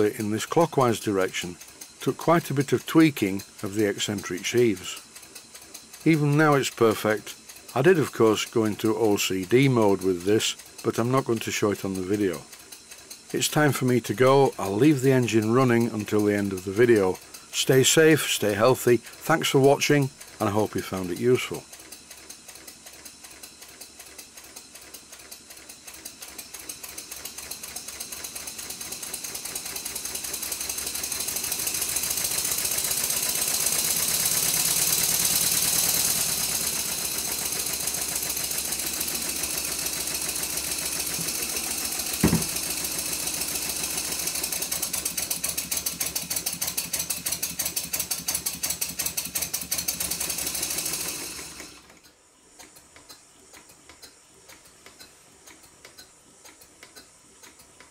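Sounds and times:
model steam engine chuffing: 0:00.0 - 0:52.0
sharp knock: 0:42.2 - 0:42.6.

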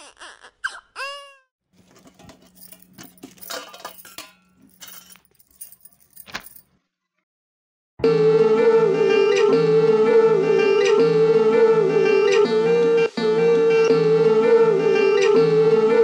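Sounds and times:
metal cups clinking: 0:01.8 - 0:06.6.

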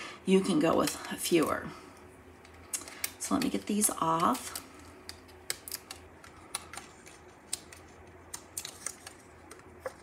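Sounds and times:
faint irregular clicks and ticks: 0:02.0 - 0:09.7.

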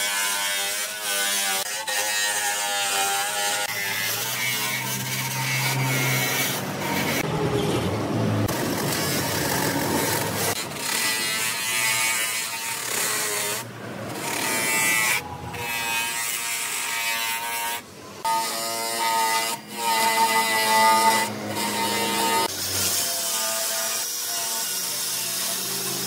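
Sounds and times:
sanding disc whining on wood: 0:08.5 - 0:26.0.

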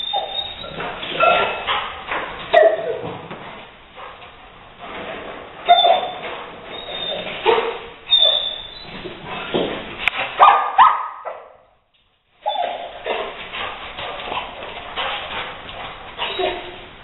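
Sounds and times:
dog barking and yelping: 0:00.0 - 0:03.1, 0:05.7 - 0:08.8, 0:10.4 - 0:11.6, 0:12.4 - 0:13.4, 0:16.2 - 0:16.9.

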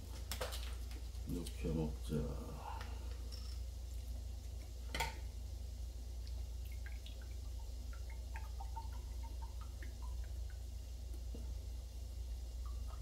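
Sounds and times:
liquid pouring into a mug: 0:06.1 - 0:11.5.

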